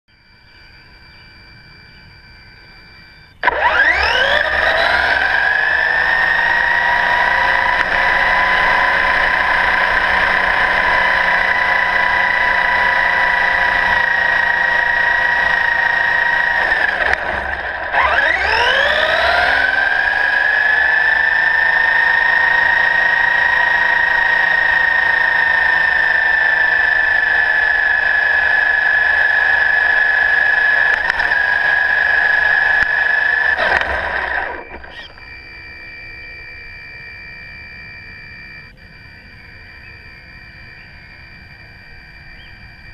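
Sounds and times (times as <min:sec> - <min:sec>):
toy car motor whining: 0:00.3 - 0:42.9.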